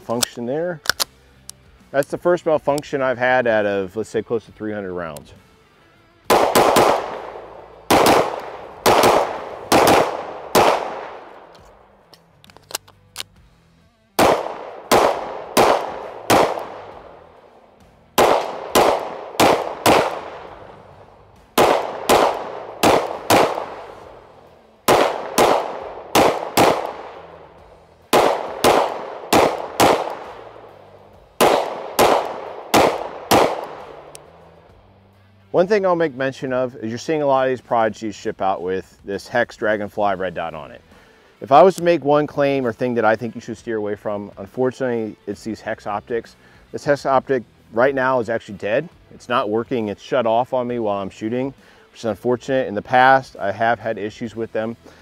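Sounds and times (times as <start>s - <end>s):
pistol shots with echo: 6.2s - 11.8s, 14.2s - 34.4s.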